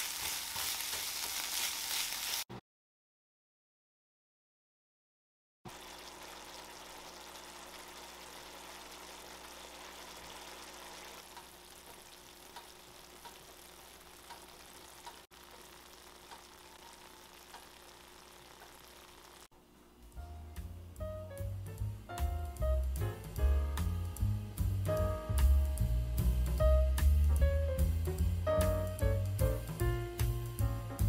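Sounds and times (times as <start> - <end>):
meat sizzling in a frying pan: 0.0 - 2.5, 5.7 - 19.5
sauce simmering with small pops: 6.2 - 19.5.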